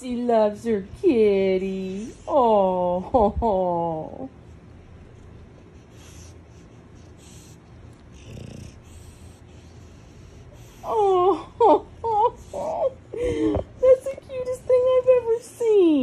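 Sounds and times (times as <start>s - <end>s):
dog breathing and snorting: 4.6s - 11.3s.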